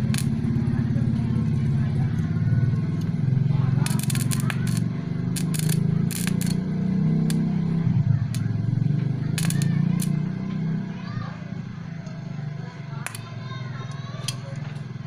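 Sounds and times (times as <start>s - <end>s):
welding arc crackle: 0.0s - 0.5s, 3.7s - 7.4s, 9.2s - 10.3s
welder low hum: 0.0s - 10.6s.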